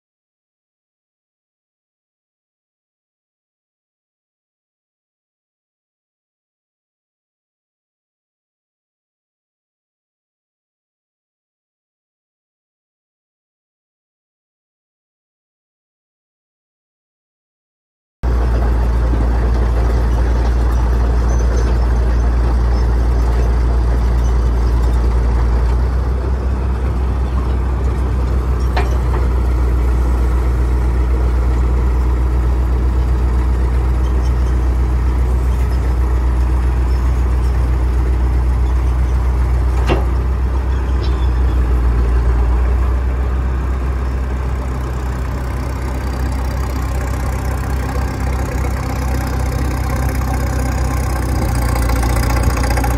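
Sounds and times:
power shovel engine running: 18.3s - 52.9s.

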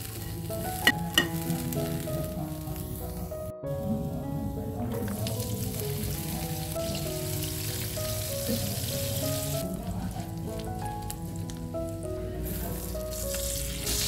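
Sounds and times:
fish sizzling in hot oil: 0.0s - 3.1s, 5.0s - 14.0s
background music: 0.0s - 14.0s.

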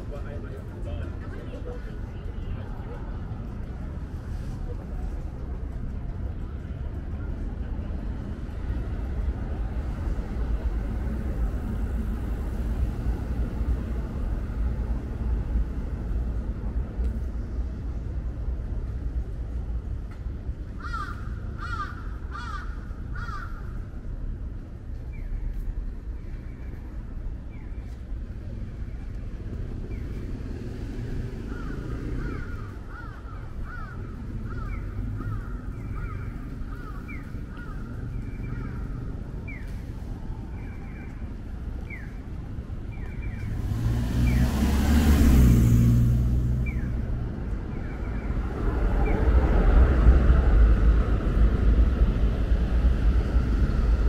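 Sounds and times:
street traffic rumble: 0.0s - 54.0s
crow cawing: 20.8s - 23.8s, 31.5s - 37.8s.

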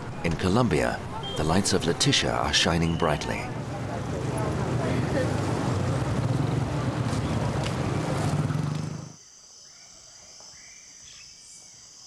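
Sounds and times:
motorcycle and car engines: 3.4s - 9.2s
insects trilling: 9.1s - 12.0s.

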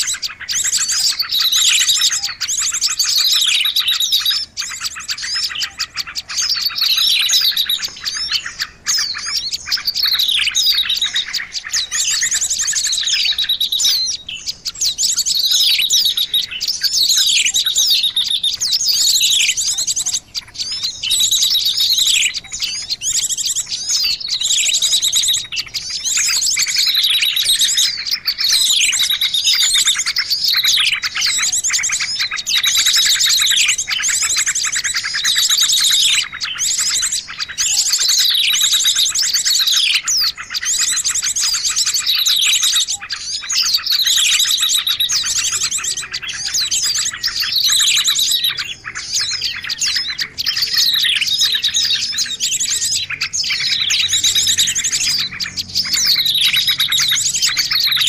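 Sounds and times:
songbirds trilling and chirping: 0.0s - 58.0s.

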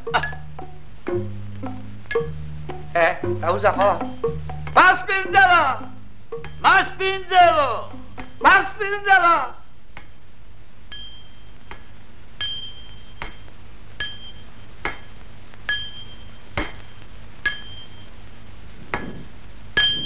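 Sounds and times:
light metallic strikes with ring: 8.2s - 8.4s, 10.9s - 18.1s, 18.9s - 20.0s.

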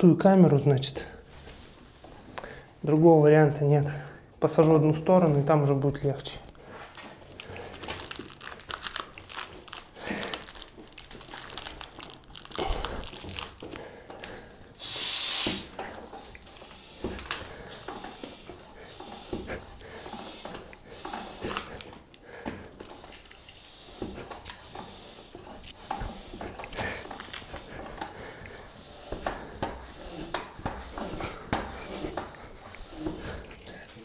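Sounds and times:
short loud hiss: 14.8s - 15.7s
rubber tire rustling and creaking: 15.7s - 34.0s.

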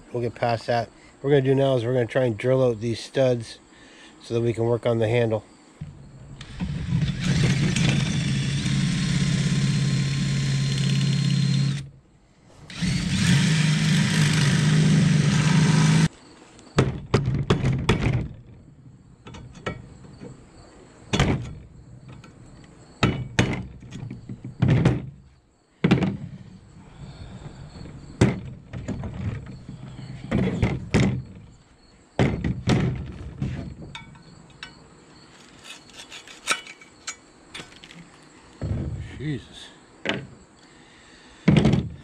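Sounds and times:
cordless drill drilling into steel: 6.4s - 11.9s, 12.7s - 16.1s
metal tools knocking on metal: 19.2s - 20.3s, 33.8s - 34.8s.

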